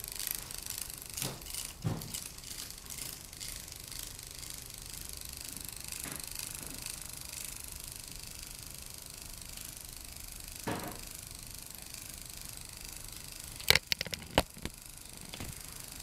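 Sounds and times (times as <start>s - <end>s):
claw clicks and knocks on wood: 13.6s - 14.7s.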